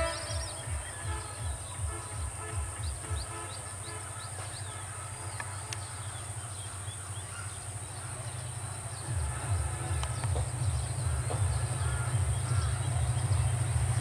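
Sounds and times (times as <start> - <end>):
diesel locomotive rumble: 5.6 - 14.0.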